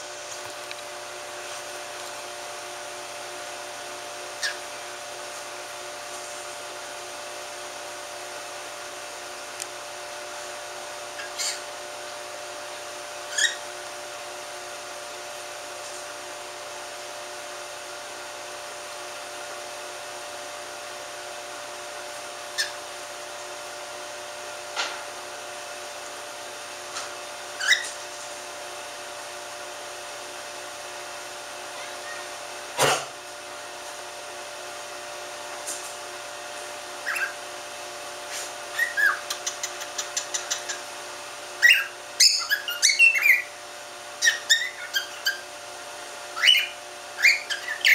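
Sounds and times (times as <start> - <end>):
steady background hum: 0.0 - 47.9
cockatiel chirping: 4.4 - 4.6, 11.2 - 11.6, 13.3 - 13.6, 22.6 - 22.8, 27.6 - 28.0, 37.0 - 37.4, 38.7 - 40.8, 41.6 - 43.5, 44.2 - 45.5, 46.4 - 47.9.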